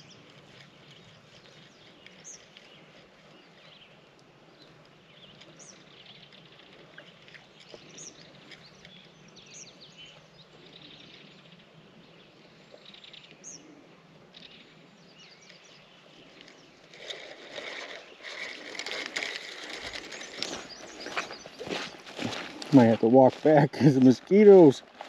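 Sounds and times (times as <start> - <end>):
rustling noise: 0.0 - 4.0, 16.2 - 25.0
wild birds chirping: 0.0 - 25.0.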